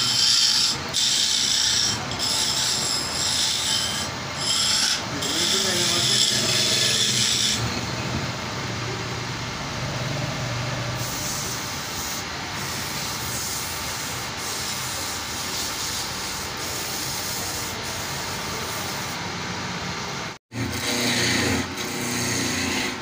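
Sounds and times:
wood lathe running: 0:00.0 - 0:07.8, 0:20.6 - 0:23.0
tool rubbing spinning wood: 0:00.0 - 0:08.1, 0:11.0 - 0:19.2, 0:20.5 - 0:23.0.

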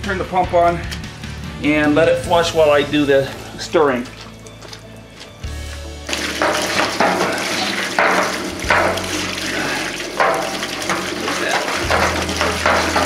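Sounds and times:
water gushing and splashing on floor: 0:06.0 - 0:13.0.

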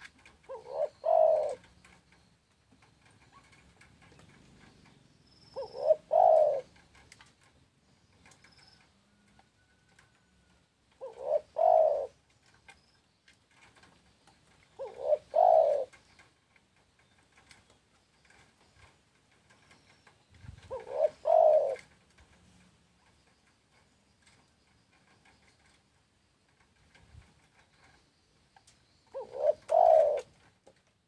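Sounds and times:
dove cooing: 0:00.0 - 0:07.2, 0:10.9 - 0:12.6, 0:14.5 - 0:16.4, 0:19.5 - 0:22.6, 0:29.0 - 0:30.8.

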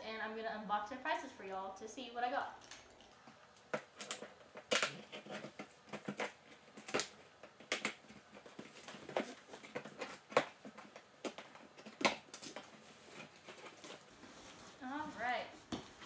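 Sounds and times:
scissors snipping packing tape: 0:03.6 - 0:14.0.

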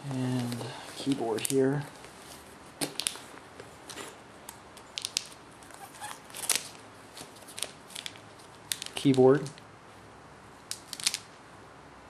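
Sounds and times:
cardboard packaging handled: 0:04.9 - 0:09.5.

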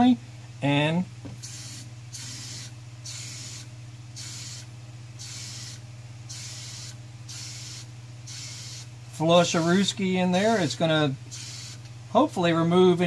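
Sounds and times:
steady low hum: 0:00.0 - 0:13.0
aerosol can spraying hiss: 0:01.4 - 0:08.9, 0:11.3 - 0:11.8.

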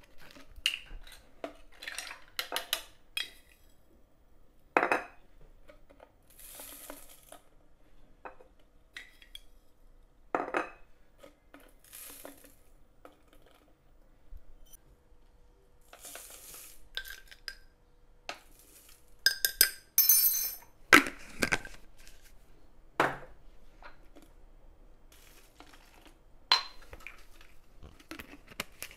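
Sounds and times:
utensils clinking against dishes: 0:19.3 - 0:20.7.

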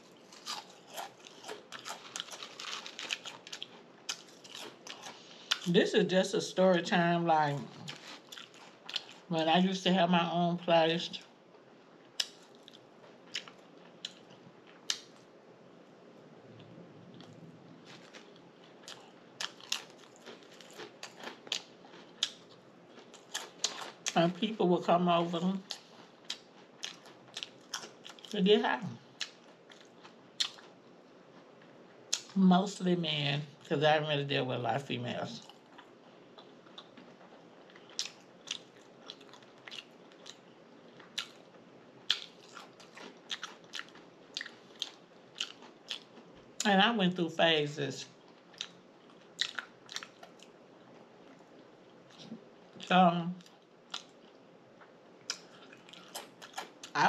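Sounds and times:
quiet chewing: 0:00.0 - 0:05.7, 0:07.6 - 0:09.3, 0:12.2 - 0:15.3, 0:16.6 - 0:24.2, 0:25.6 - 0:28.4, 0:29.0 - 0:32.3, 0:35.4 - 0:46.7, 0:48.2 - 0:57.0
sharp food crunches: 0:00.1 - 0:05.7, 0:17.8 - 0:24.2, 0:42.1 - 0:46.2.

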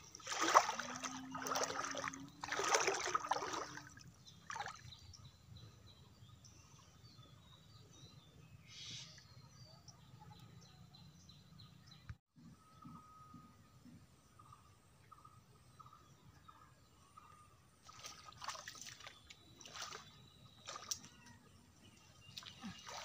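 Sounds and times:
water splashing: 0:00.0 - 0:04.9, 0:17.8 - 0:21.2, 0:22.2 - 0:23.0
faint bird chirps: 0:04.4 - 0:23.0.

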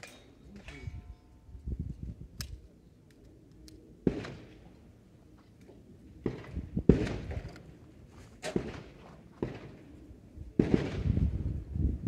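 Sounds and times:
pistol shots: 0:04.0 - 0:04.5, 0:08.4 - 0:09.8, 0:10.6 - 0:11.1.

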